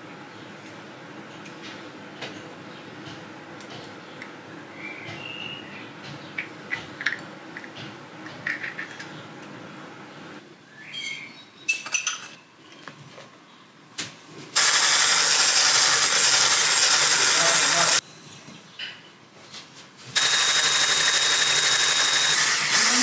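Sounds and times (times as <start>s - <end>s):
electric hand mixer running: 14.6s - 18.0s, 20.2s - 23.0s.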